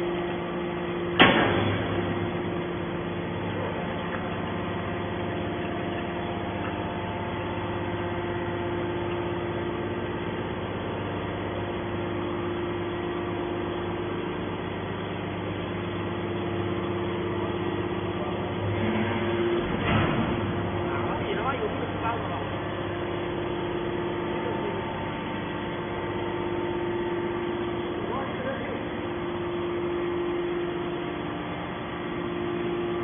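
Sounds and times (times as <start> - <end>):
hydraulic pump hum: 0.0 - 33.0
loud metal clank: 1.2 - 2.3.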